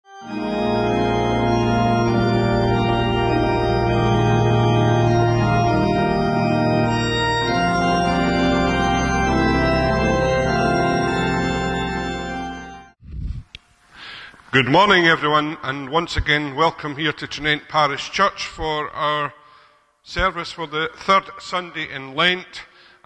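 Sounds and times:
organ chords: 0.0s - 13.0s.

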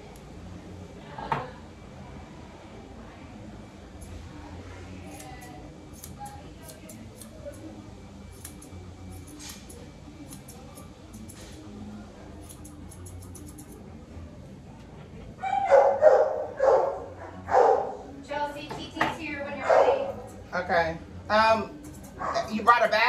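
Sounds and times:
grooming shears snipping: 5.0s - 7.7s, 8.3s - 11.6s, 12.4s - 13.8s
dog barking loudly: 19.6s - 20.1s.

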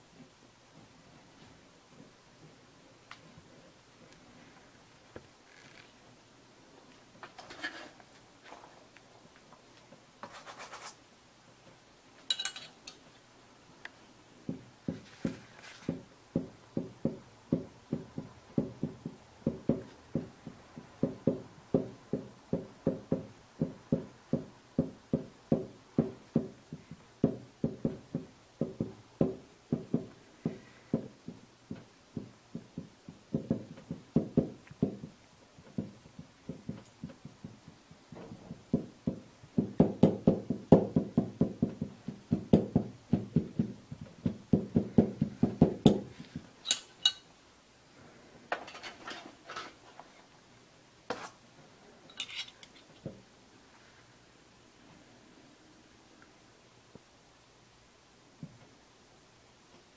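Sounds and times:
hot iron tapping on paper: 14.5s - 46.5s.

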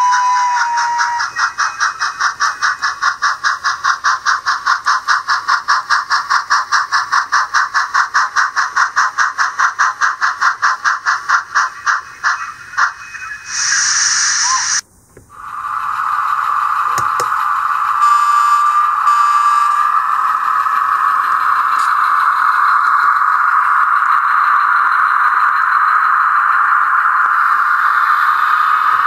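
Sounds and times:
steam hiss: 0.0s - 25.4s, 26.0s - 29.0s
model locomotive steam chuff: 0.0s - 29.0s.

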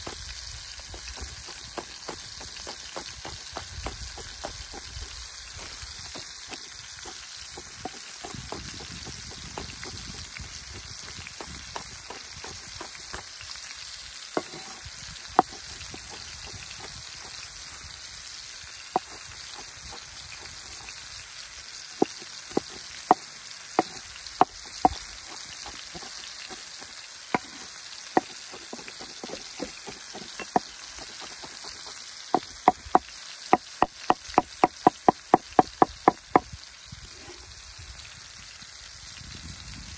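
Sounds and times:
food sizzling: 0.0s - 39.9s
knife chopping on wooden board: 0.8s - 13.3s, 14.4s - 14.8s, 15.4s - 17.4s, 19.0s - 20.9s, 22.0s - 36.5s.

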